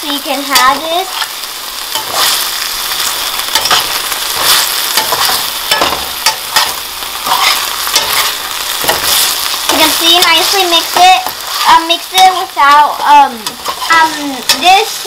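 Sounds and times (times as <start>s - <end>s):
onions sizzling in oil: 0.0s - 15.0s
metal spoon scraping pan: 1.9s - 2.4s, 3.5s - 10.3s, 13.4s - 15.0s.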